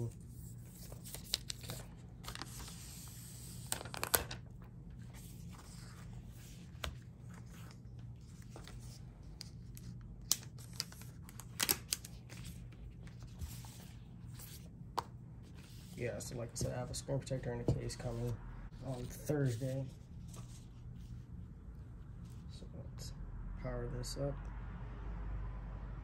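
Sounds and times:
paper rustling and tearing: 0.1 - 4.4.

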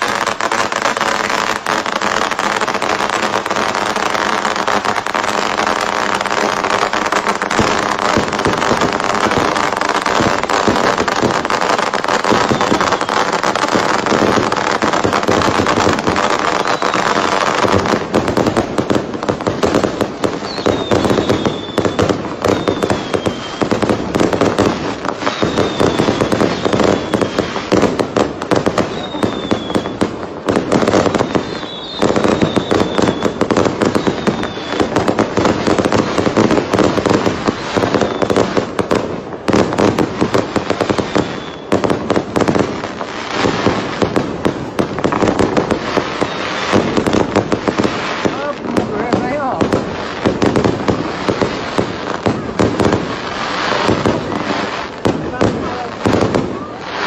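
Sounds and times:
fireworks crackling and popping: 0.0 - 57.0
high whistles dropping in pitch: 31.3 - 33.4.

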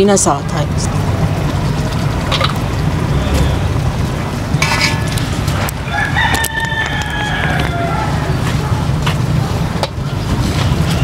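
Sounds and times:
steady low rumble: 0.0 - 11.0
spoon scraping metal pot: 4.6 - 5.2.

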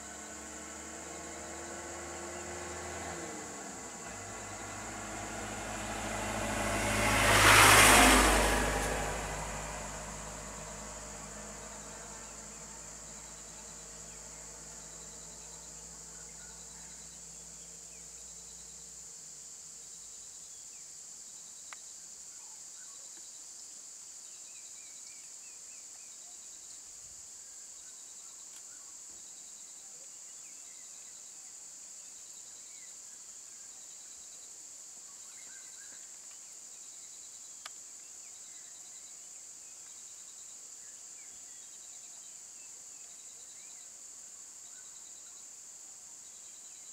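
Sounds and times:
idling vehicle hum: 0.0 - 20.2
high-pitched insect chorus: 0.0 - 46.9.

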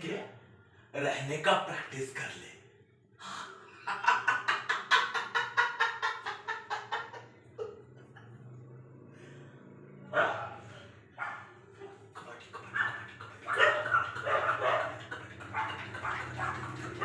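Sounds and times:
man laughing staccato: 12.1 - 17.0.

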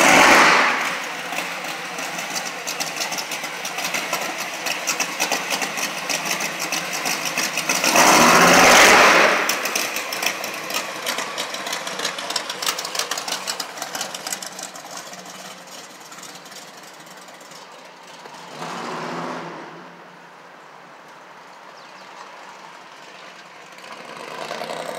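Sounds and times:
pickup truck engine running: 0.8 - 18.3.

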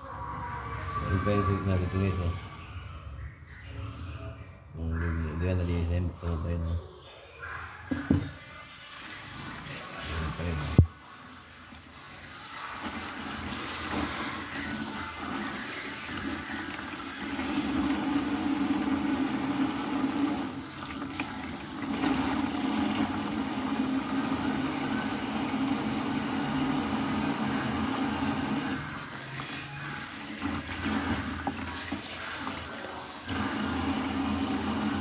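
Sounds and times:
water splashing in sink: 8.9 - 35.0.

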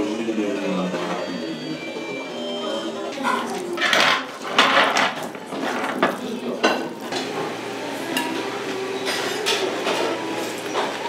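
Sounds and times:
chopsticks squelching noodles in bowl: 3.2 - 3.8.

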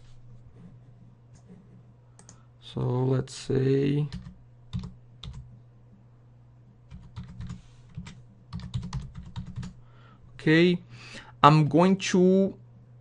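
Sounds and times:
computer keyboard keystrokes: 4.1 - 5.4, 6.9 - 9.8.

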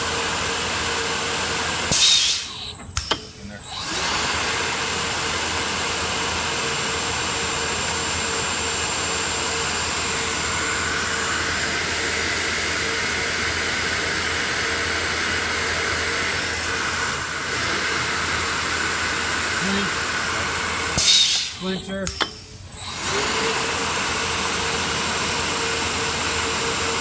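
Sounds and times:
drilling machine whine and hum: 0.0 - 27.0.

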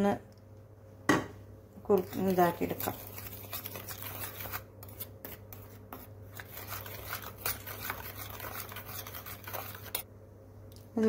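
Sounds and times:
spoon scraping a steel bowl: 1.9 - 10.1.

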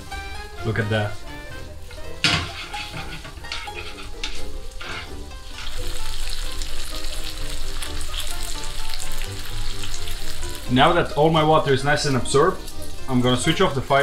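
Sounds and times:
pasta sizzling in a frying pan: 0.0 - 14.0
utensils scraping a pan: 0.1 - 6.5.

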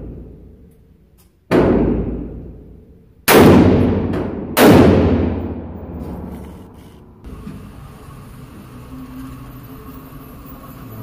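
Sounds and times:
rifle shots echoing indoors: 1.4 - 6.8.

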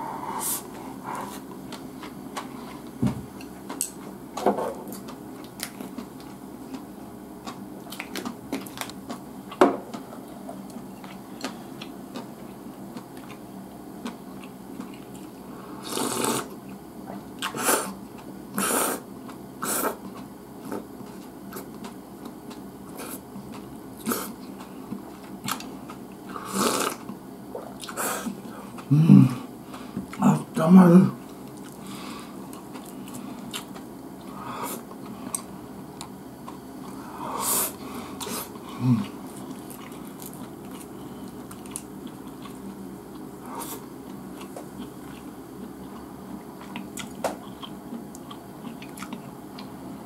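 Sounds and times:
chewing and mouth clicks: 14.0 - 15.4, 31.4 - 31.8, 38.2 - 49.7.

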